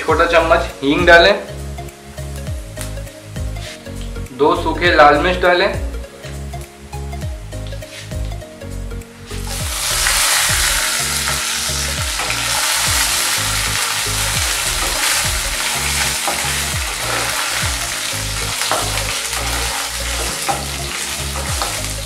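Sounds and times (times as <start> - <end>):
hot oil sizzling: 0.0 - 4.2, 9.2 - 22.0.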